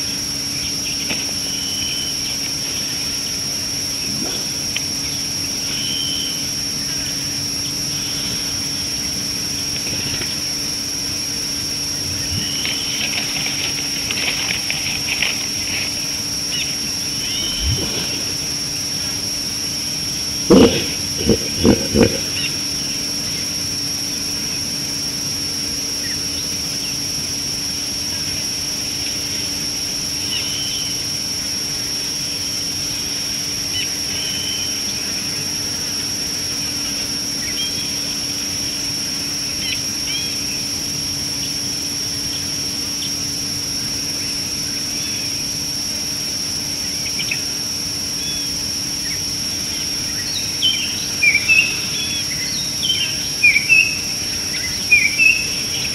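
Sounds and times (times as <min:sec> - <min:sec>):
constant hiss: 0:00.0 - 0:38.8
high-pitched insect drone: 0:00.0 - 0:55.9.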